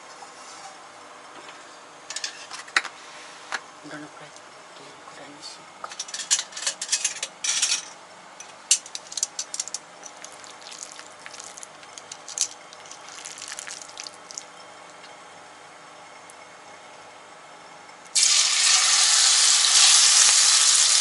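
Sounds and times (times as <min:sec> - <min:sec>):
oil crackling in frying pan: 0:09.4 - 0:14.6, 0:18.2 - 0:21.0.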